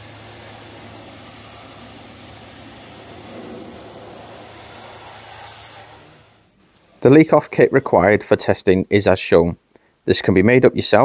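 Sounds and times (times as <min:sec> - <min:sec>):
low hum: 0:00.0 - 0:08.1
pressure washer spraying water: 0:00.0 - 0:08.2.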